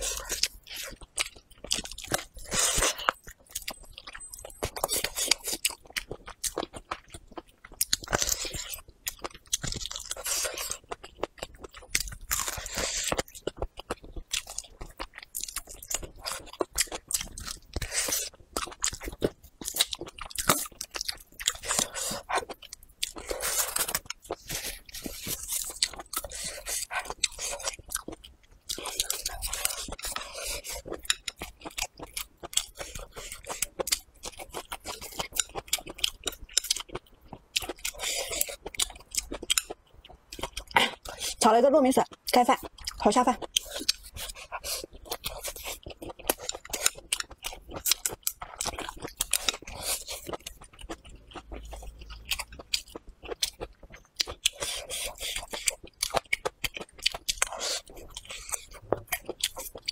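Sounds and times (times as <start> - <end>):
close chewing and biting: 0.0 - 59.9.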